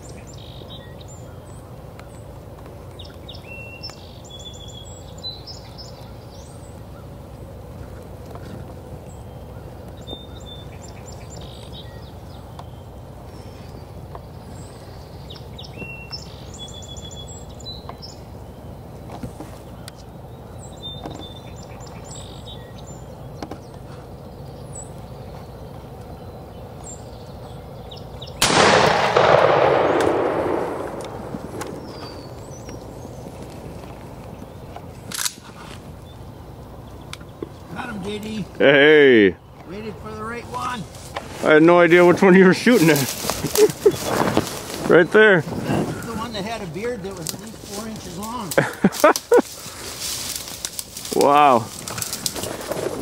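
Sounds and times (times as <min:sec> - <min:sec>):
bird chirps: 0:00.0 - 0:40.9, 0:41.9 - 0:49.9
faint outdoor background: 0:00.0 - 0:53.0
echoing shotgun blast: 0:28.4 - 0:32.5.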